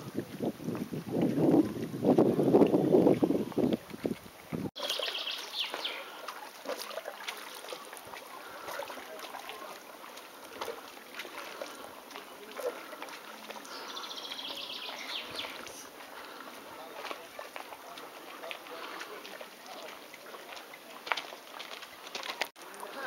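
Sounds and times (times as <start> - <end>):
songbird trilled phrase: 4.8 - 6.1, 13.7 - 15.9
soft bird chirps: 4.8 - 6.5, 13.6 - 15.9.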